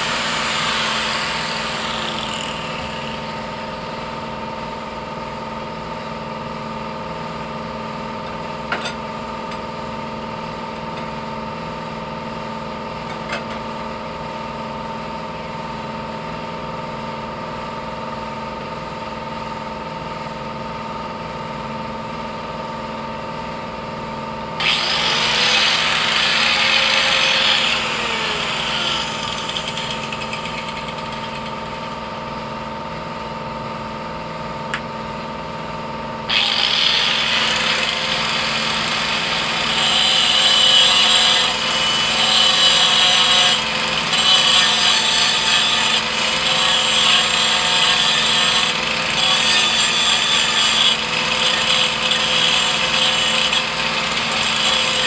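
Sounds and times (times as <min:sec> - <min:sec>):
angle grinder cutting steel: 0:00.0 - 0:03.8, 0:24.6 - 0:32.1, 0:36.3 - 0:55.0.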